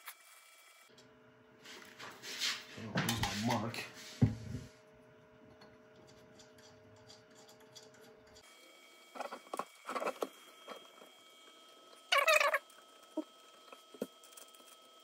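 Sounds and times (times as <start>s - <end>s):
allen key clicking and scraping bolts: 6.0s - 8.4s.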